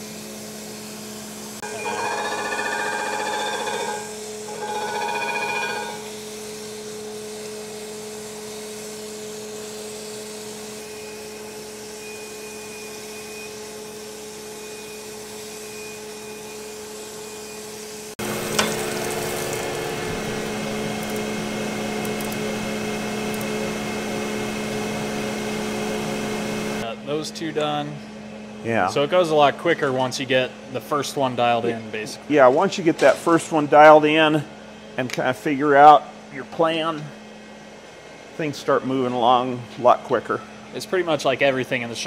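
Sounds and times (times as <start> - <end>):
grinder humming: 1.0 - 7.2, 18.2 - 26.8
grinding wheel on metal: 1.6 - 6.2, 18.3 - 23.9.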